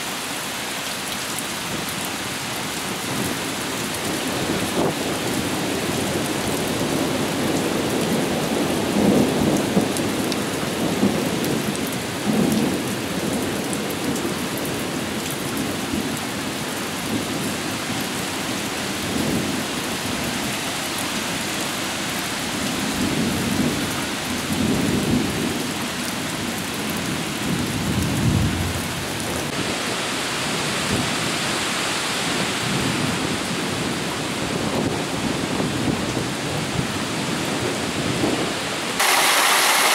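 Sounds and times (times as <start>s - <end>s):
rolling thunder: 27.4s - 29.5s
heavy rain hissing: 38.8s - 39.9s.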